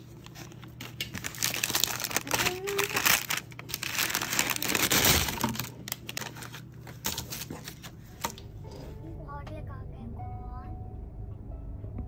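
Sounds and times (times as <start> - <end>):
paper bag crinkling and rustling: 0.0 - 8.3.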